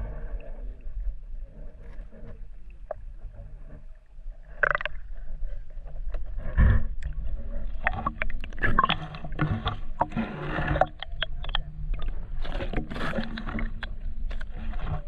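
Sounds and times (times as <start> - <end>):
muffled underwater water movement: 0.0 - 15.0.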